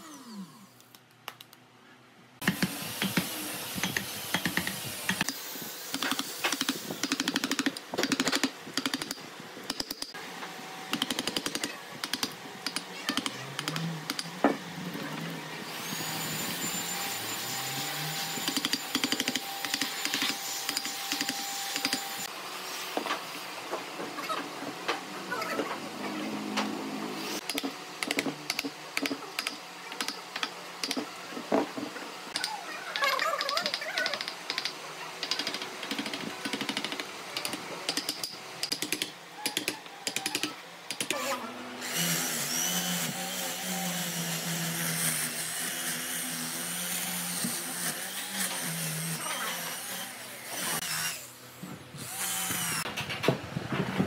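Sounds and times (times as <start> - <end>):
electric drill with brush: 2.4 - 7.7, 15.6 - 23.0, 41.0 - 52.9
angle grinder whine: 13.4 - 22.3.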